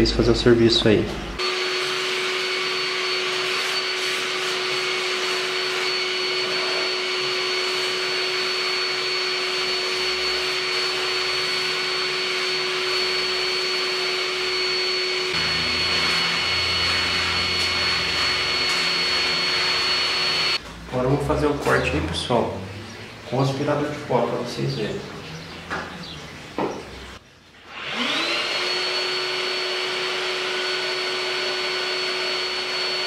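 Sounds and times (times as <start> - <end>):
vacuum cleaner whining: 1.3 - 21.2, 26.6 - 33.0.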